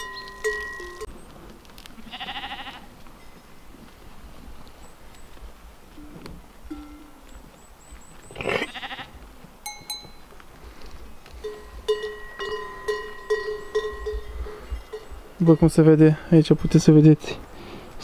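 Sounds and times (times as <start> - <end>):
livestock bell clanking: 0.0 - 1.1, 6.0 - 7.3, 9.6 - 10.3, 11.4 - 16.3
sheep bleating: 2.0 - 2.9, 8.4 - 9.2.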